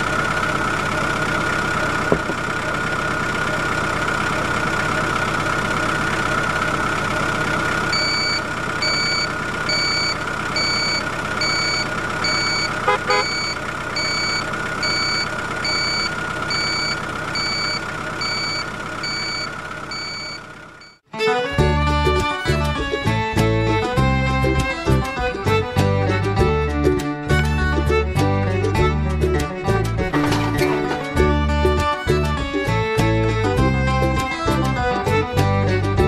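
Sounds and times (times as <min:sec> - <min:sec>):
truck engine idling: 0:00.0 - 0:21.1, 0:27.2 - 0:36.0
reversing alarm beeping: 0:07.9 - 0:21.0.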